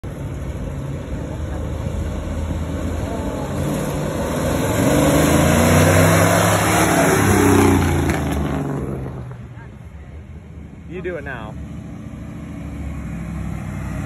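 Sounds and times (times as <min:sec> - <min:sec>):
pickup truck engine driving past: 0:01.6 - 0:09.6.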